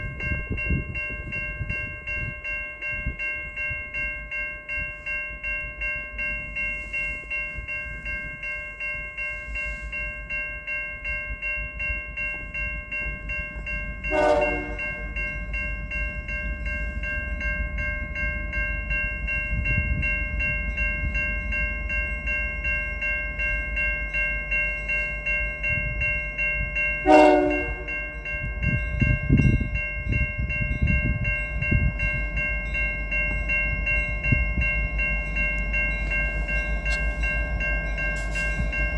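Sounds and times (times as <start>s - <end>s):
locomotive bell ringing: 0.0s - 38.9s
short train horn blasts: 14.1s - 15.0s, 27.0s - 28.0s.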